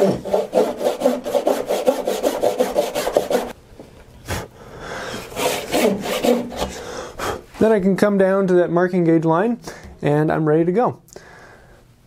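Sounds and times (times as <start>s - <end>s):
hand saw cutting wood: 0.0s - 3.6s, 5.2s - 6.9s.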